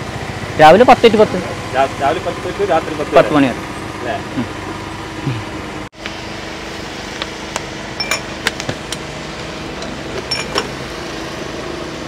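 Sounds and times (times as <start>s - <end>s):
glass tumblers clinking: 10.3s - 10.6s.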